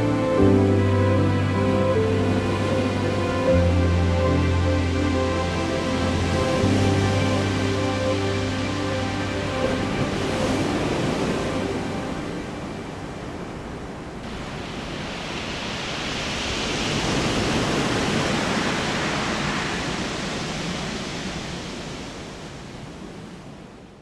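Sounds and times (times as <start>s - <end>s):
surf washing over sand: 0.0s - 24.0s.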